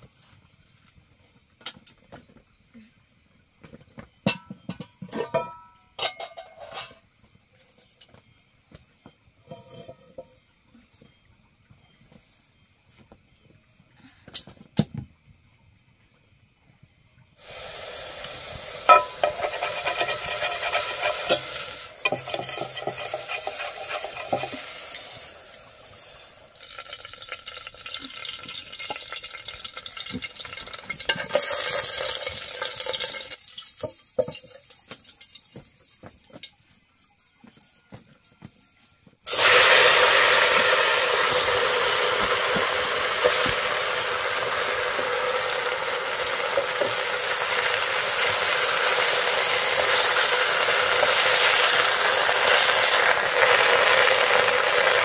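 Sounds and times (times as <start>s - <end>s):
wood fire crackling: 17.4s - 33.8s, 39.3s - 55.0s
greens sizzling in hot oil: 17.4s - 35.9s, 39.3s - 55.0s
oil crackling and sizzling: 17.4s - 36.6s, 39.3s - 55.0s.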